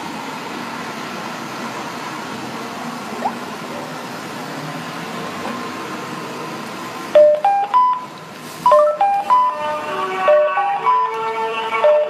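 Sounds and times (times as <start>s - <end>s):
electronic beeping tune: 7.2s - 8.1s.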